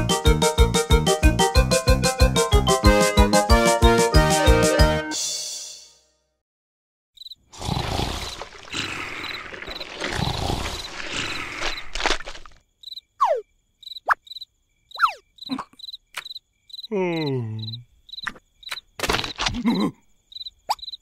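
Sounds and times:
crickets chirping: 0:07.2 - 0:21.0
cartoon liquid pouring and splattering: 0:07.6 - 0:12.6.

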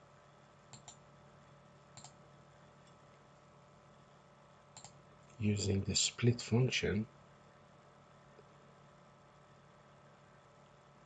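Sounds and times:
faint computer mouse clicks: 0:00.7 - 0:01.0, 0:01.9 - 0:02.2, 0:04.7 - 0:05.4.

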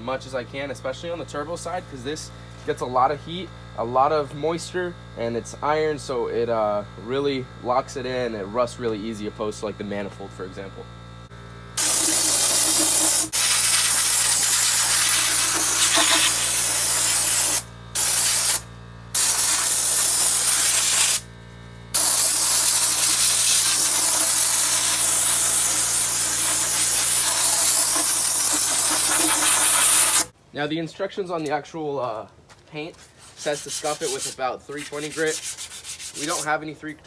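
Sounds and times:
compressed air blaster hissing: 0:11.8 - 0:21.2, 0:21.9 - 0:30.3.

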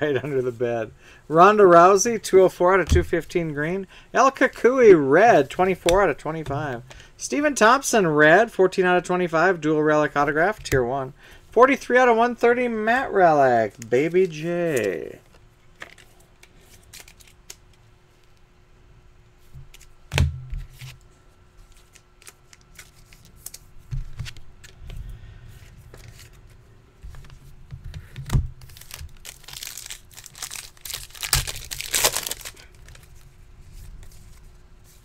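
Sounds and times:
wrapper tearing and crinkling: 0:28.6 - 0:33.3.

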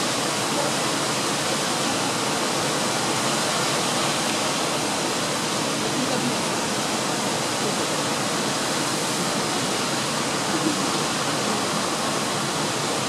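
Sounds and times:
waterfall rushing over rock: 0:00.0 - 0:13.0.

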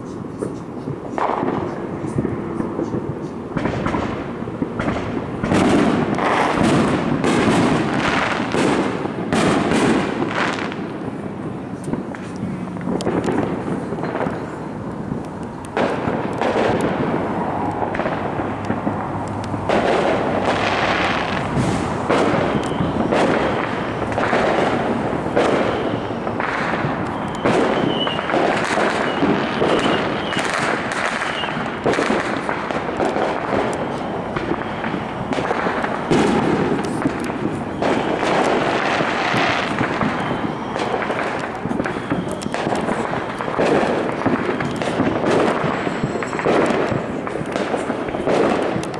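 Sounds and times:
fireworks bangs and crackling: 0:00.0 - 0:48.9
high firework whistle: 0:15.8 - 0:48.9.

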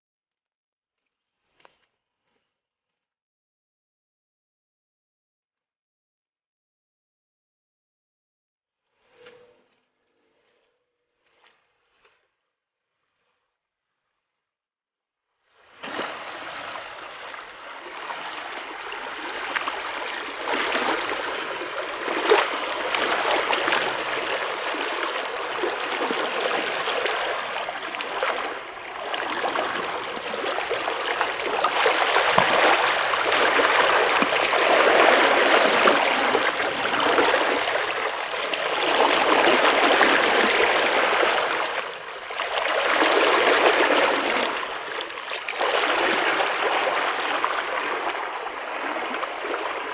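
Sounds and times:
floodwater rushing: 0:15.8 - 0:49.9.

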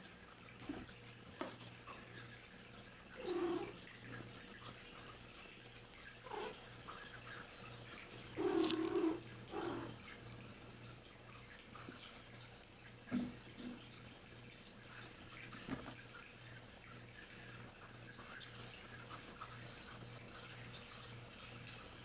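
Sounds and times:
cats meowing: 0:08.4 - 0:10.0.

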